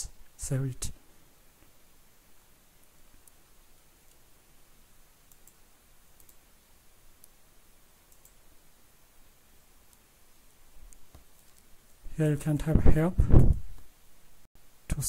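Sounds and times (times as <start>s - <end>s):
background hiss: 0.0s - 15.0s
computer mouse clicks: 3.2s - 3.4s, 4.0s - 4.3s, 5.2s - 6.5s, 7.2s - 7.4s, 8.1s - 8.4s, 10.9s - 12.0s.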